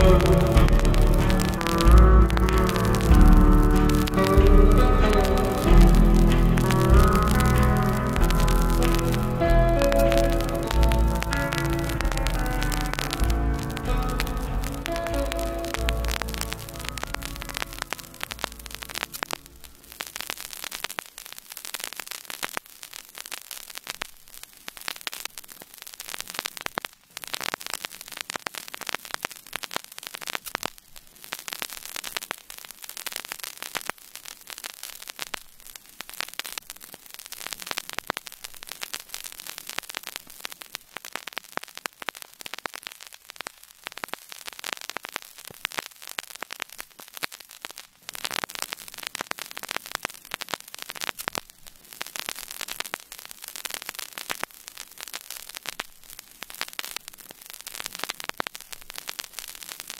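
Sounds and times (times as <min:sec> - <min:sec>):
static hiss with crackling: 0:00.0 - 0:59.9.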